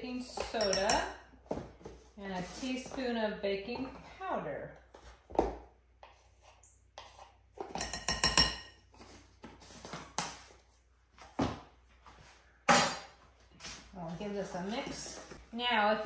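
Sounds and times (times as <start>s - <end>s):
metal spoon clinking on containers: 0.2s - 1.2s, 7.7s - 8.8s.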